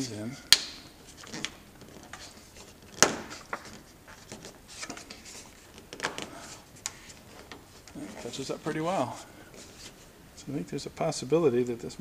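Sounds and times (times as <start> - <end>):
soft rubbing: 0.0 - 12.0.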